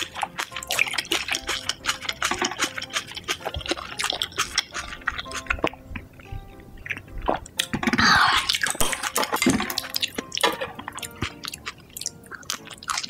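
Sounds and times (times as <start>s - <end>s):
chewing and eating noises: 0.0s - 13.0s
faint background music: 0.0s - 13.0s
wet smacks and clicks: 0.0s - 13.0s.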